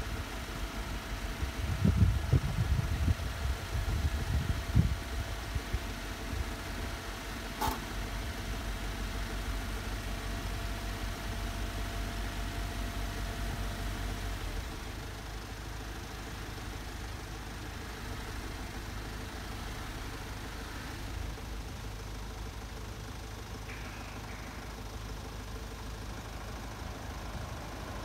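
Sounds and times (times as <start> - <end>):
car engine idling: 0.0 - 28.0
sharp click: 7.6 - 7.8.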